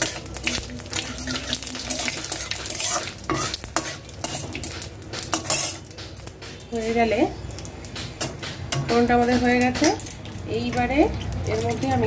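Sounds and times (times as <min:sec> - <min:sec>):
metal spatula scraping metal pan: 0:00.0 - 0:07.2
spices sizzling in hot oil: 0:00.0 - 0:12.0.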